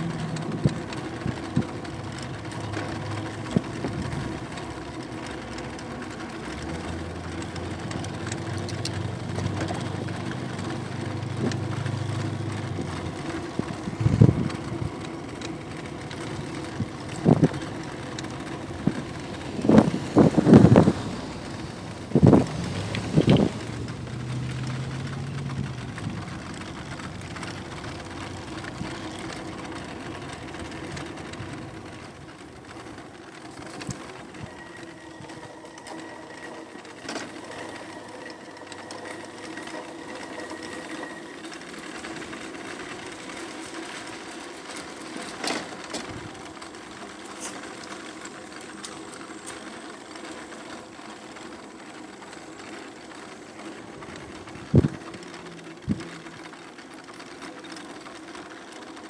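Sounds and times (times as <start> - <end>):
electric bike motor whir: 0.0 - 59.0
tyre and road noise: 0.0 - 59.0.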